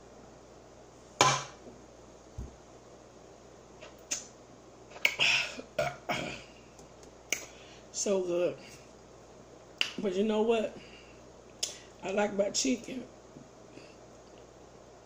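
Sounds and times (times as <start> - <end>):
mouth smacks: 3.8 - 4.3.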